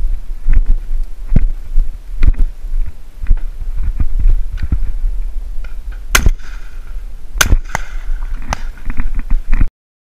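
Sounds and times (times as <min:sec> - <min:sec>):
steady low rumble: 0:00.0 - 0:09.7
shotgun shots with echo: 0:06.1 - 0:08.8.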